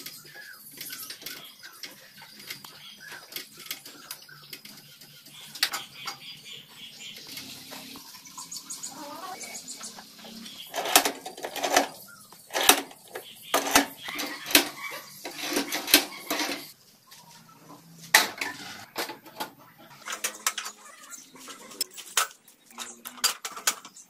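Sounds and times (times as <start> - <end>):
metal tools clinking and clanking: 10.5 - 16.8, 18.2 - 24.0.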